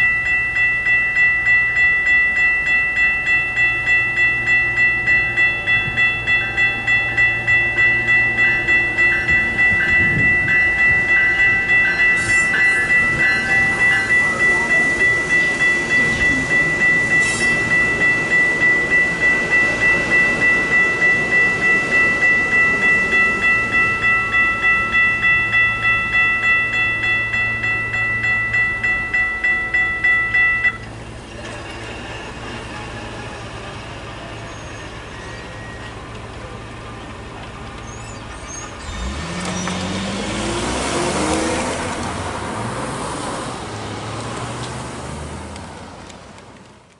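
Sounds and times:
railroad crossing bell ringing: 0.0 - 42.6
road traffic: 0.0 - 46.9
train rolling by: 0.0 - 46.9
car passing: 7.5 - 28.6, 38.6 - 46.4.

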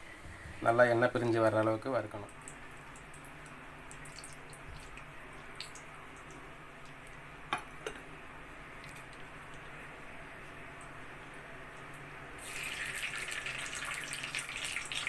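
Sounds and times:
oil pouring into pan: 12.4 - 15.0.

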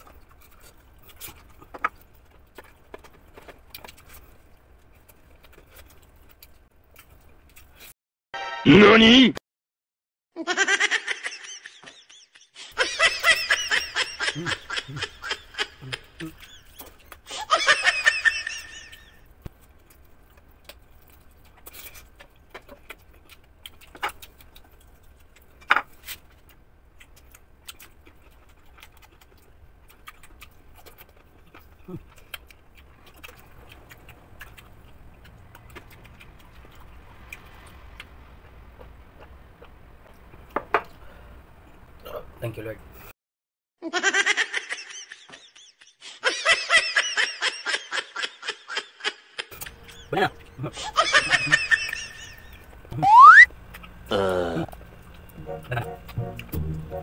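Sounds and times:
mouth chewing and swallowing: 19.4 - 41.1
low steady hum: 49.5 - 57.0
high-pitched giggling: 50.7 - 52.4, 53.0 - 53.4.

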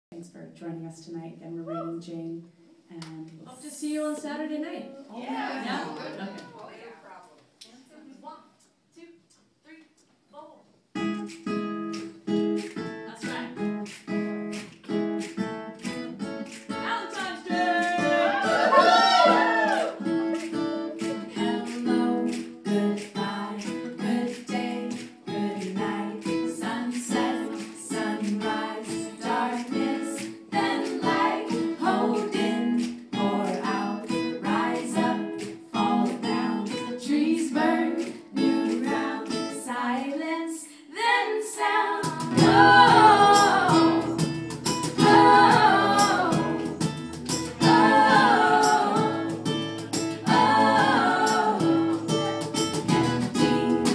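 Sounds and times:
acoustic guitar strumming: 11.0 - 39.6, 42.2 - 53.9
woman singing: 16.7 - 19.3, 21.2 - 44.3, 45.0 - 46.9, 47.6 - 49.4, 50.3 - 53.9.

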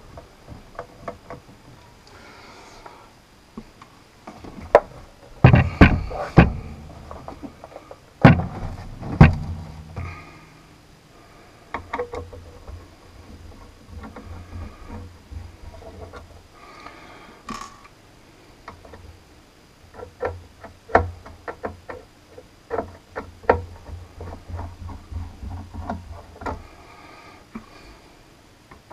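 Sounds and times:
metal radio knocking on bench: 5.4 - 7.2, 8.2 - 10.1.

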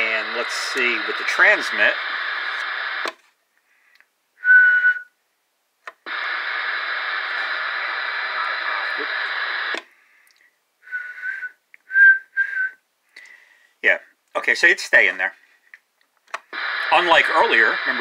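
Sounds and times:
radio receiver hiss: 0.0 - 4.0, 5.9 - 11.4, 16.3 - 18.0
whistle into microphone: 4.4 - 5.1, 10.9 - 12.8.

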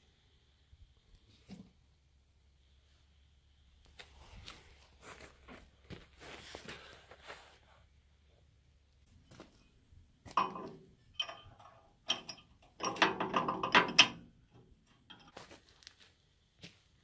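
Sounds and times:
metal part clanking on steel frame: 10.3 - 15.4.

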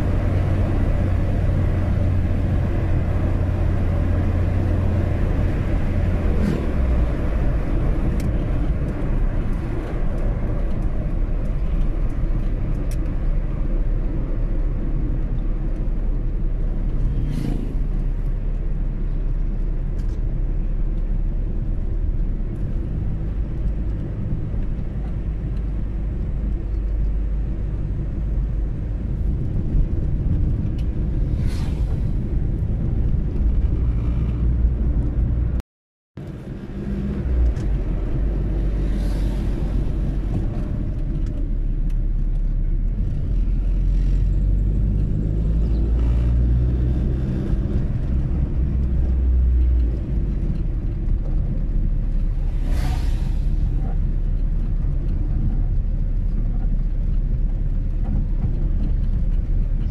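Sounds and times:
car engine and road rumble: 0.0 - 35.6, 36.2 - 59.9.

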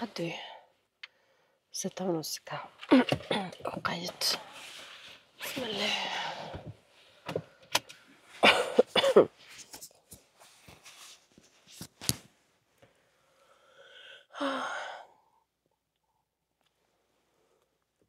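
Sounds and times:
person's voice: 0.0 - 0.5, 1.8 - 4.5, 5.4 - 6.5.

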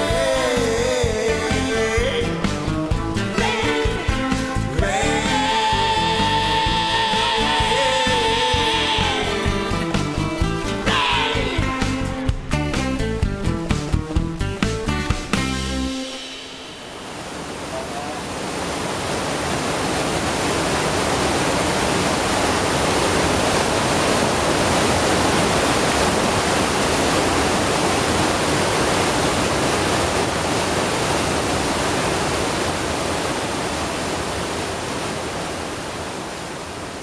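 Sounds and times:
waterfall rushing into pool: 3.3 - 10.0, 15.3 - 37.0.

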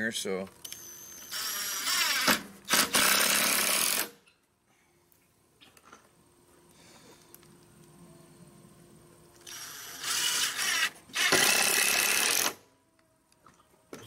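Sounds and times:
cordless drill driving screws: 1.1 - 4.1, 9.4 - 12.6.

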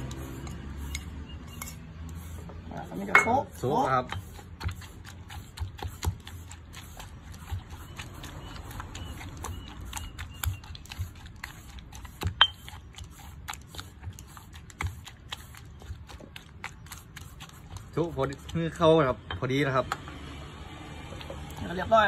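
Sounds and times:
stone pestle pounding in mortar: 3.0 - 6.4, 12.0 - 13.1.

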